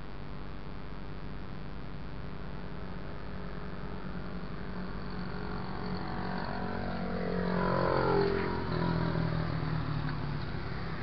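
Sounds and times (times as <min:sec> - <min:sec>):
low hum of traffic: 0:00.0 - 0:11.0
vehicle passing by: 0:03.4 - 0:11.0.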